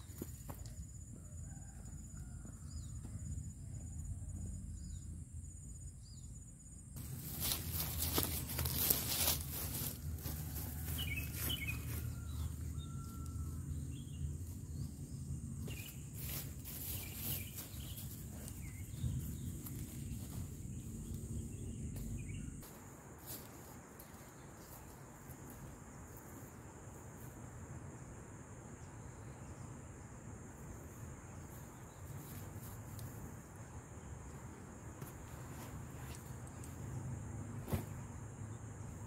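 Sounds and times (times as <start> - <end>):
high insect drone: 0.0 - 39.0
rustling: 7.0 - 12.0.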